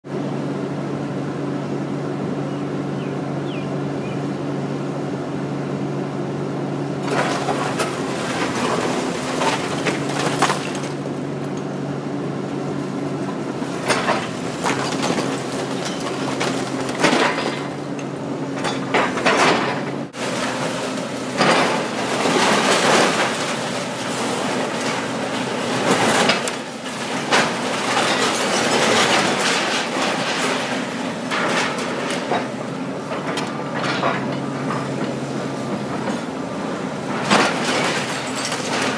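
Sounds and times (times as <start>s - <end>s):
excavator diesel engine running: 0.1s - 38.9s
bricks crashing and falling: 7.0s - 11.0s.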